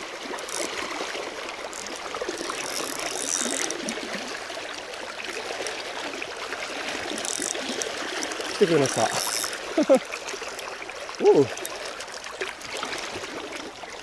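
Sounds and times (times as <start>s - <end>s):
river water rushing: 0.0s - 14.0s
fishing reel gears ticking: 0.3s - 4.0s, 6.9s - 10.0s.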